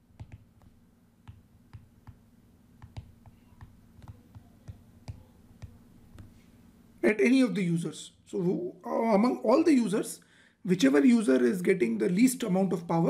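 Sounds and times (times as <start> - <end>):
low steady hum: 0.0 - 13.0
stylus tapping on glass screen: 0.1 - 2.2, 2.8 - 6.4.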